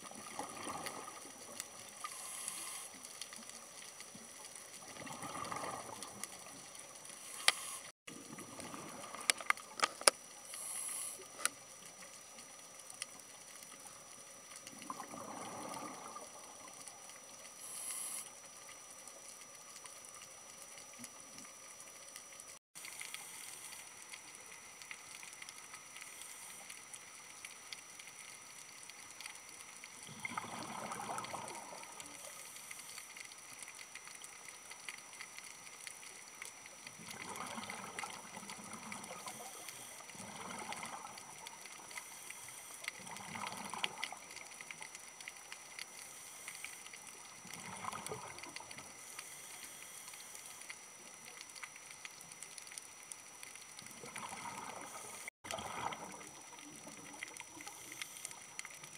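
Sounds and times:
faint hiss and crackle: 0.0s - 58.9s
diver's breath bubbling underwater: 30.1s - 31.8s.

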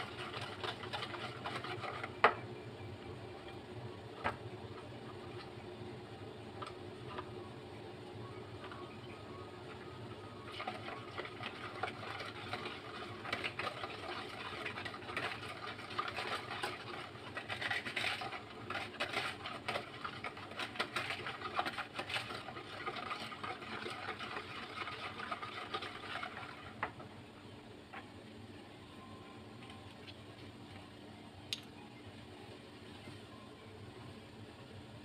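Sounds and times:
whisk beating batter in bowl: 0.0s - 2.2s, 10.5s - 26.8s.

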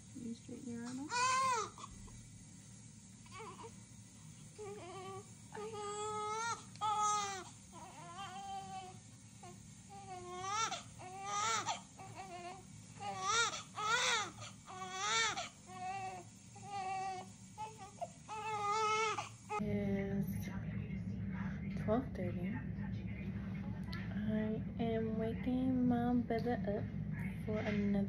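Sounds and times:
newborn baby crying: 1.1s - 2.0s, 3.2s - 3.8s, 4.6s - 19.6s.

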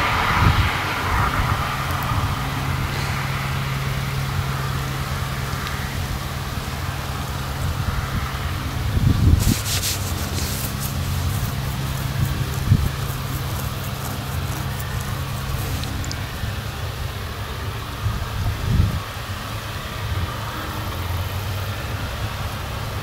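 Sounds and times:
tractor engines droning: 0.0s - 23.0s
dry crackling rattle: 9.4s - 16.5s.

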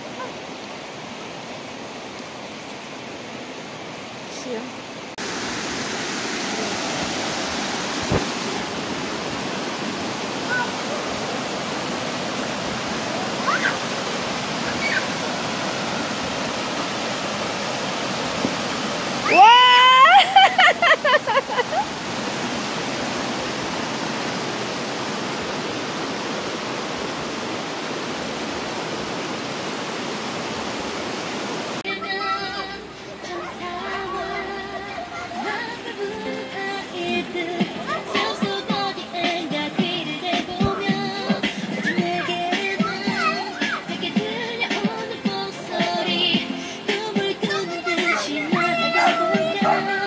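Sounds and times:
stream rushing over rocks: 0.0s - 50.0s
dull thump: 8.1s - 8.3s.

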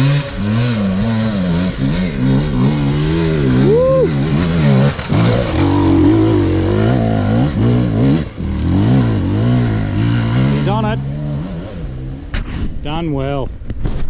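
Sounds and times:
dirt bike engine revving: 0.0s - 12.7s.

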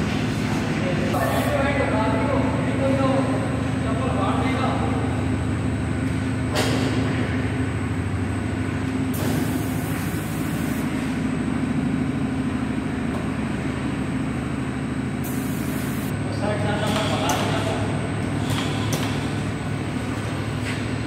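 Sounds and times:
machine motor hum: 0.0s - 21.0s
high hiss: 15.2s - 16.1s.

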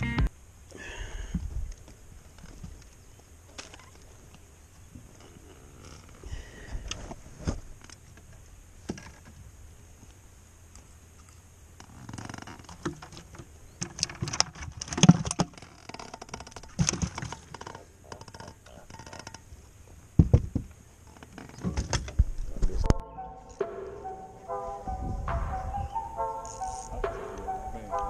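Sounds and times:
clicks knocks and rattles: 12.5s - 19.4s.

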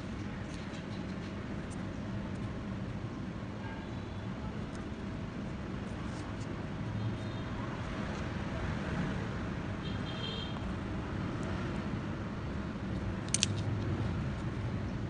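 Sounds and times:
sharp clicks: 12.9s - 13.9s.

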